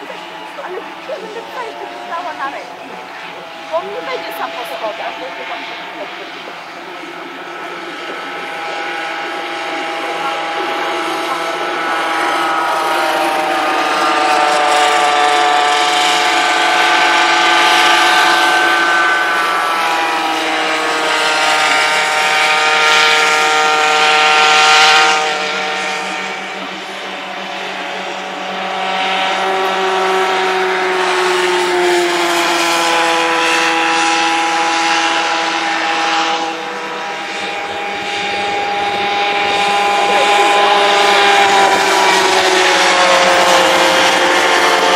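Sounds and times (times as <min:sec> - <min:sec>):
kart engines whining: 0:00.0 - 0:44.9.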